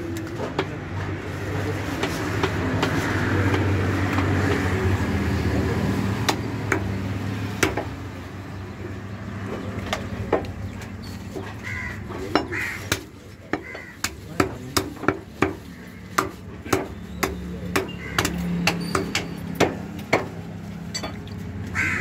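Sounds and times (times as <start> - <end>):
vehicle engine passing: 1.0 - 11.2.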